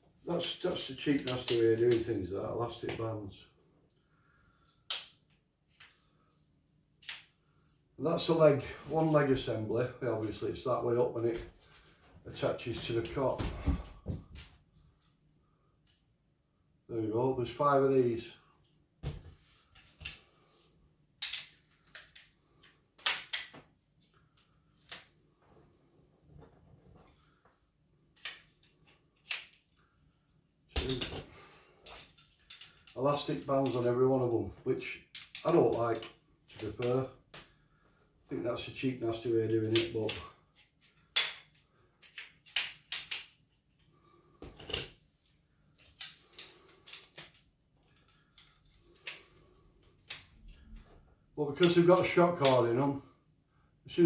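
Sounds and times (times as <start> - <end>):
cot poles clicking and clacking: 0.3 - 2.1.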